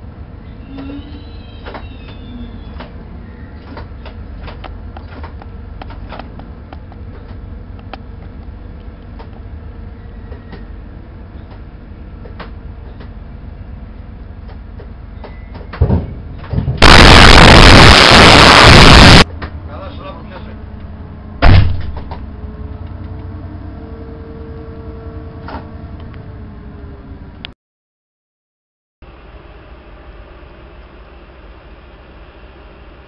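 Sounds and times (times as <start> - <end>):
loud digital noise burst: 16.8 - 19.3.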